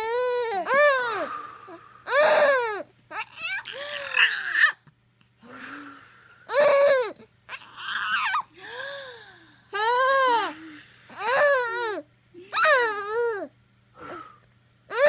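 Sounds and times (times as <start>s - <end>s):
baby cooing and babbling: 0.0s - 1.3s, 2.1s - 4.8s, 6.5s - 8.5s, 9.8s - 10.6s, 11.2s - 13.5s.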